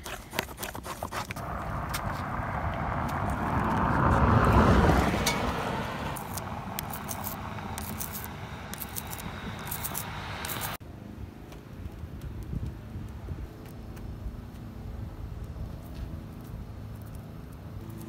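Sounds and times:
vehicle passing: 1.4 - 10.8.

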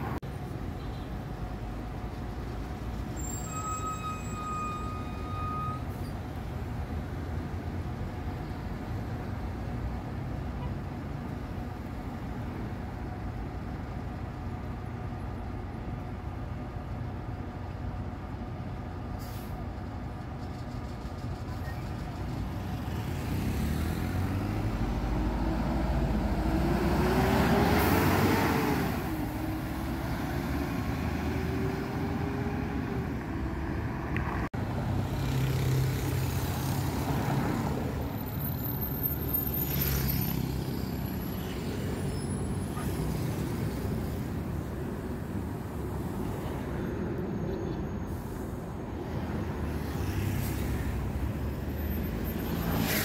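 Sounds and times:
bus engine pulling away: 0.0 - 53.0.

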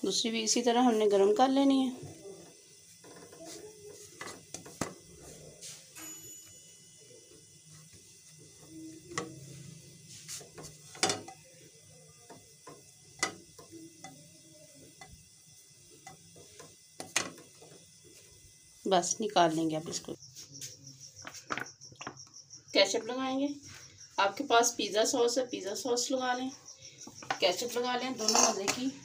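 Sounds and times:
pizza base clicking in a frying pan: 7.7 - 18.2.

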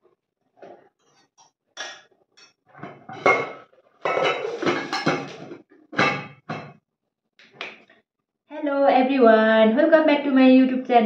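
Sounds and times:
dishes clattering and clinking: 0.6 - 6.8.

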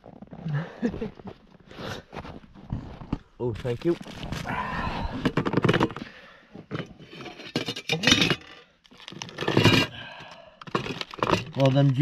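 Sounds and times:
metal lid clinking open: 7.5 - 8.5
aluminium foil crinkling: 10.8 - 12.0.

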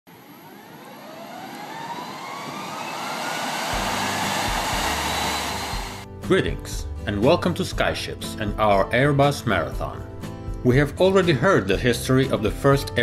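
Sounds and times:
jet engine spooling up: 0.1 - 6.1.

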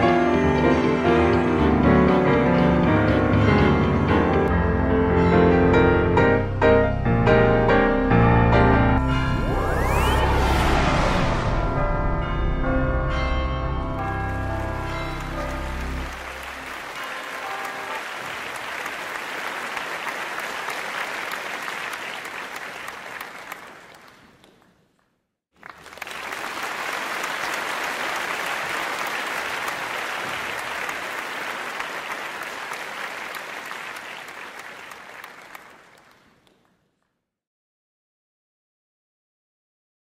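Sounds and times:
crowd applause: 14.0 - 24.5, 25.6 - 36.6.

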